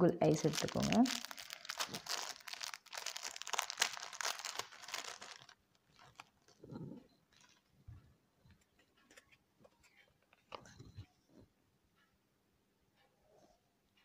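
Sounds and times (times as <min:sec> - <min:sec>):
plastic packet crinkling: 0:00.2 - 0:07.7.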